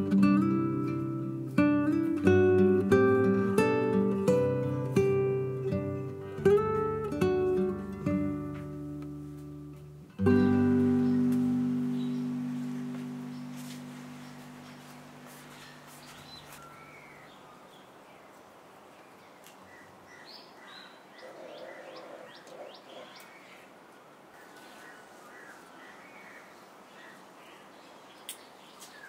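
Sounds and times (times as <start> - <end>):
leaves rustling: 0.2 - 29.0
birds chirping: 9.5 - 29.0.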